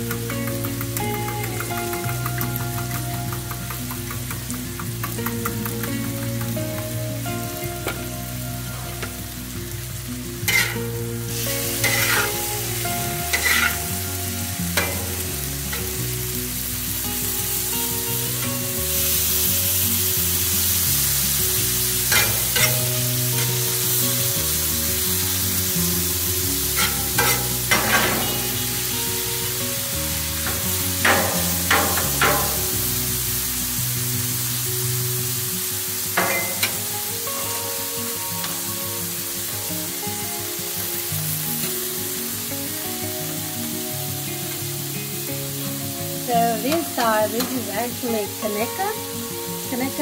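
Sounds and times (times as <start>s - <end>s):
meat sizzling on griddle: 0.0s - 50.0s
quiet background music: 0.0s - 50.0s
metal spatula scraping griddle: 10.5s - 10.9s, 11.6s - 12.5s, 13.2s - 14.0s, 14.8s - 15.9s, 22.1s - 23.6s, 26.7s - 28.9s, 30.5s - 32.7s, 36.2s - 36.9s.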